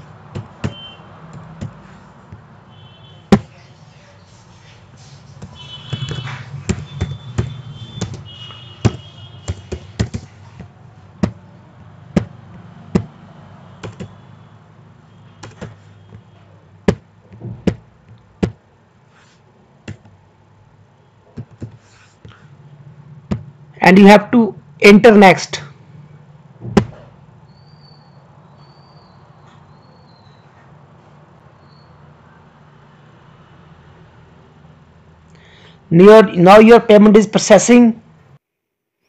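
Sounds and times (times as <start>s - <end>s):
keyboard keystrokes: 13.8s - 14.1s.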